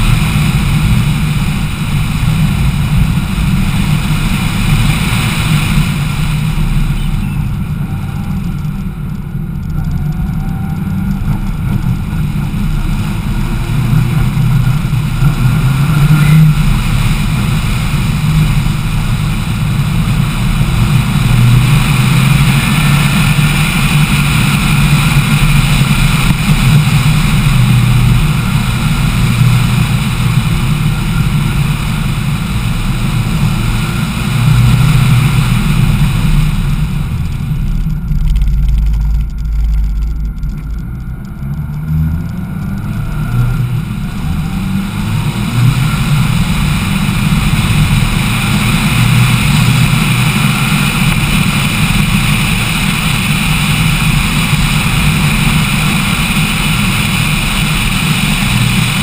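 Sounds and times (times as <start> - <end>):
rally car engine: 0.0 - 59.0
wind noise: 0.0 - 59.0.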